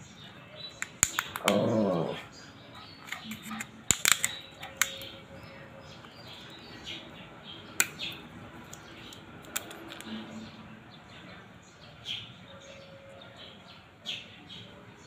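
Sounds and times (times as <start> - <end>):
plastic and metal clicks and taps: 0.8 - 1.6, 3.0 - 5.1.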